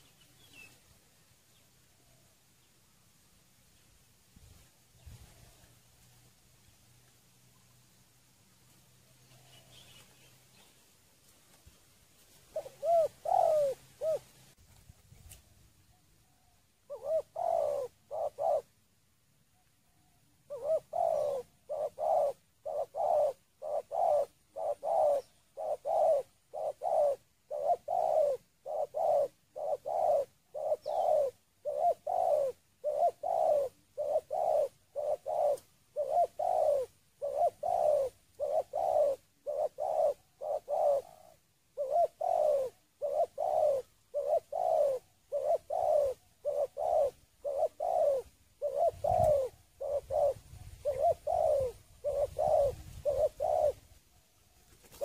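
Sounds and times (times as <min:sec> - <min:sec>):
dove cooing: 0:12.4 - 0:14.5, 0:15.9 - 0:18.9, 0:19.9 - 0:55.0.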